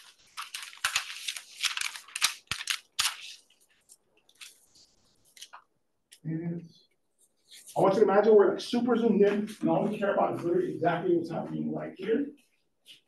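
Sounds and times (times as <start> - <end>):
paper rustling: 0.0 - 5.8.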